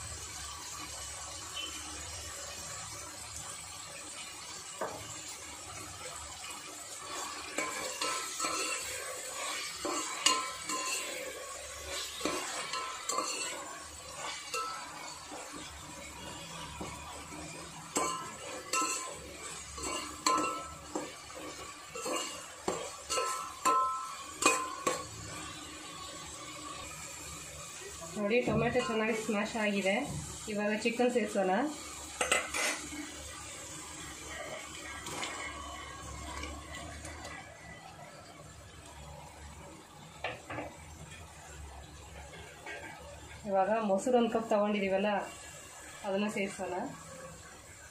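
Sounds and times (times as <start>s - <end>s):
vegetables sizzling in oil: 0.0s - 47.9s
spoon scraping and knocking pot: 7.1s - 15.6s, 17.9s - 25.1s, 32.2s - 32.8s.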